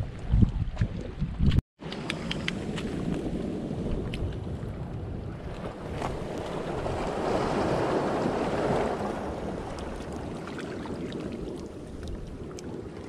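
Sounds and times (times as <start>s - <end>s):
wind rumbling on microphone: 0.0s - 13.0s
seawater sloshing: 5.3s - 13.0s.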